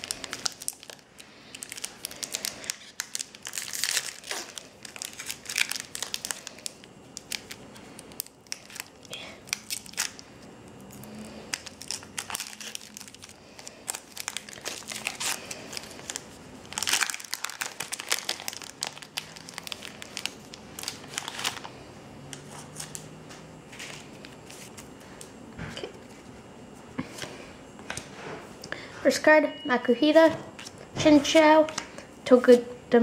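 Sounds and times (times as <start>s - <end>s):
foil wrapper crinkling: 0.0s - 21.8s.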